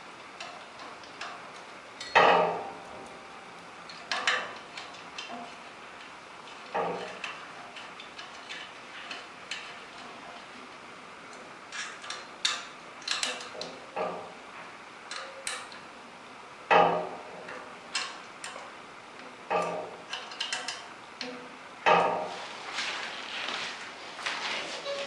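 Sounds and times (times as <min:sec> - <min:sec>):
small metallic clicks: 0:11.3 - 0:14.2, 0:15.1 - 0:15.9, 0:17.5 - 0:22.1.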